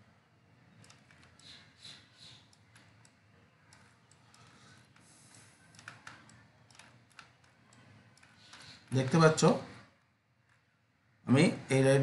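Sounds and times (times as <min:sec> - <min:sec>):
computer mouse clicks: 0:00.7 - 0:09.0.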